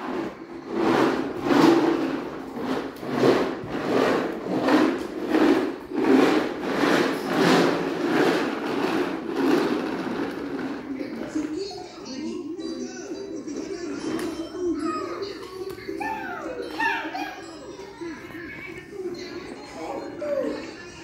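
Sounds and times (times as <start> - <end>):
toy truck wheels rumbling on tiles: 0.0 - 12.3.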